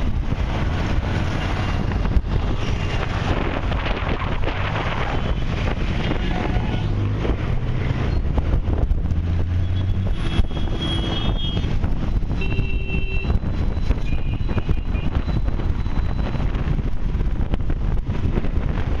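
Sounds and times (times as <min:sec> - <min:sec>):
low engine hum: 0:00.0 - 0:12.4
city road traffic: 0:00.0 - 0:19.0
vehicle horns beeping: 0:09.6 - 0:11.7, 0:12.3 - 0:13.4, 0:14.0 - 0:15.3.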